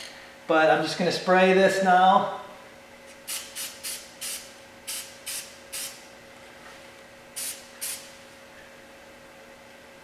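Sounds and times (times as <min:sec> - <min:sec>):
aerosol spray can hissing: 0:03.3 - 0:06.0, 0:07.4 - 0:08.1.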